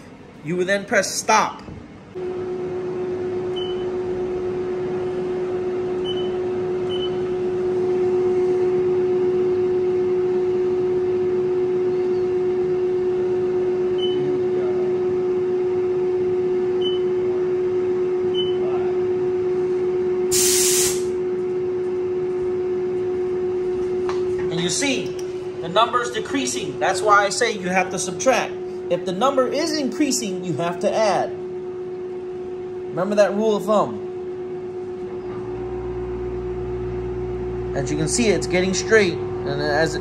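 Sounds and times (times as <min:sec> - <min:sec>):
mill spindle whine: 0:01.7 - 0:40.0
short hiss: 0:20.3 - 0:21.1.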